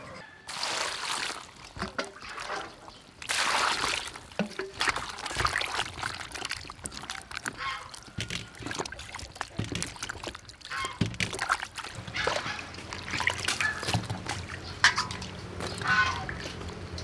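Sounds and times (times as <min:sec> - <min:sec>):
hand sloshing vegetables in water: 0:00.5 - 0:17.0.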